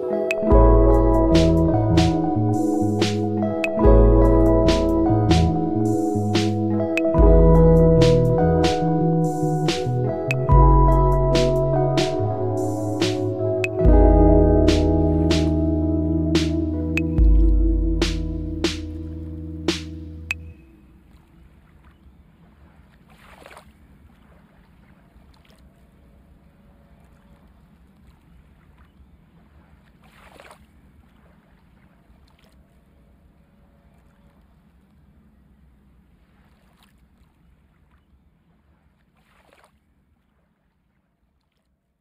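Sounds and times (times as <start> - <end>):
low background rumble: 13.8 - 20.5.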